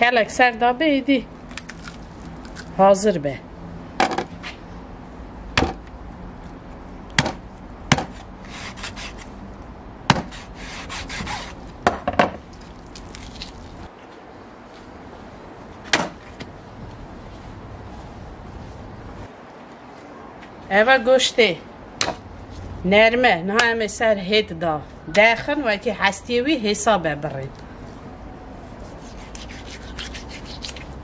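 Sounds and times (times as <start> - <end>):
utensils scraping: 29.0 - 31.0.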